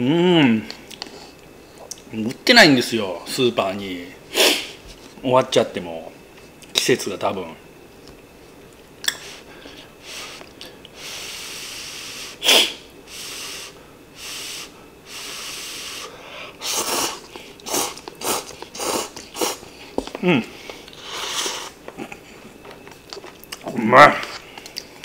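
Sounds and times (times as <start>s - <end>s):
person slurping noodles: 11.0s - 19.6s, 21.0s - 21.8s.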